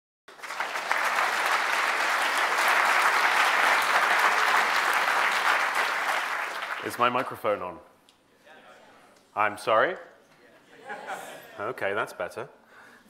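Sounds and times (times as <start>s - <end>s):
audience applauding: 0.3s - 7.4s.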